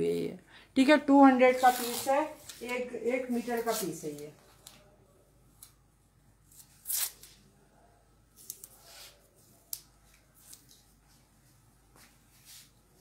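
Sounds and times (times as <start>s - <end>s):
fabric rustling: 1.4s - 4.2s.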